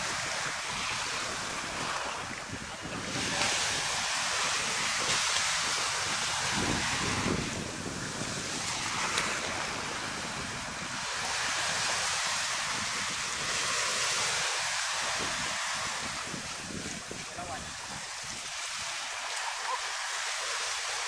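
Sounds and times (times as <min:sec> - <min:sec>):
wind buffeting microphone: 0:00.0 - 0:20.4
small waves breaking: 0:00.0 - 0:21.0.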